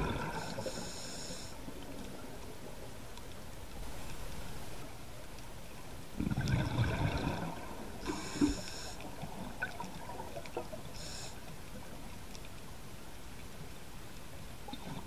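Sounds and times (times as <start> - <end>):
exhaled bubbles underwater: 0.0 - 0.7, 6.2 - 10.9
regulator inhalation hiss: 0.4 - 1.6, 8.0 - 9.1, 11.0 - 11.4.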